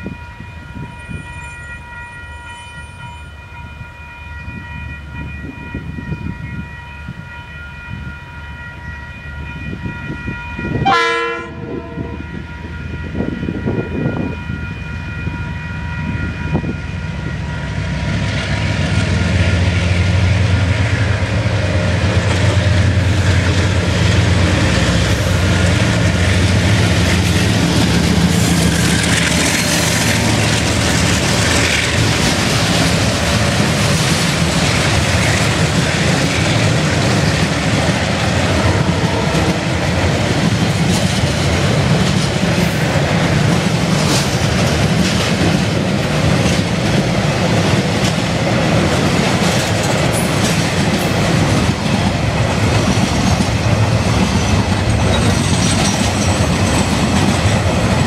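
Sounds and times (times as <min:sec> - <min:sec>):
locomotive engine running: 0:15.7 - 0:58.0
train wheels clattering on rails: 0:16.0 - 0:58.0.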